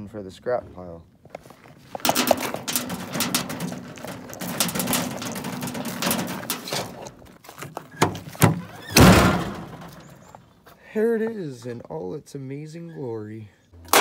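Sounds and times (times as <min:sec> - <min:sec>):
scrap metal clattering: 0:01.6 - 0:10.4
heavy metal crash: 0:02.0 - 0:07.2, 0:08.9 - 0:10.1.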